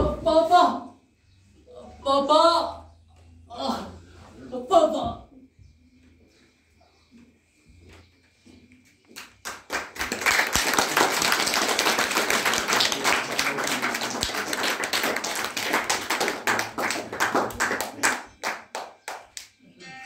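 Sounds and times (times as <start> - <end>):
audience clapping: 9.2 - 19.6.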